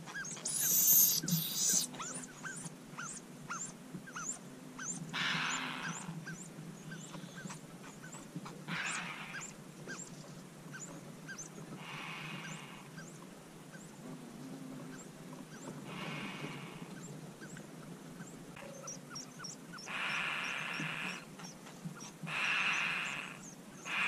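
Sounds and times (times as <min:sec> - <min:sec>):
nestlings begging calls: 0:00.0 - 0:13.9, 0:14.9 - 0:17.6, 0:18.2 - 0:24.0
hissing bursts: 0:00.4 - 0:01.9.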